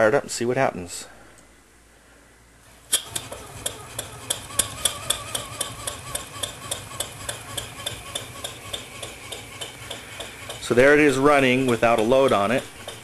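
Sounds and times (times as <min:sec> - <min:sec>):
steady low hum: 0:00.0 - 0:13.0
steam engine running on air: 0:02.9 - 0:13.0.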